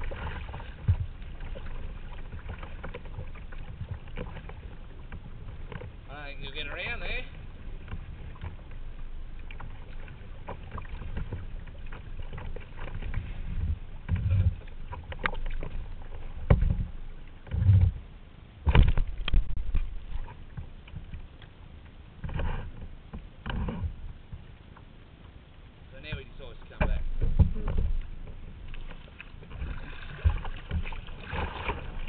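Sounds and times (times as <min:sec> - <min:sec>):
paddle splashing in water: 0:00.0 - 0:32.0
heavy low thumps: 0:26.1 - 0:28.2.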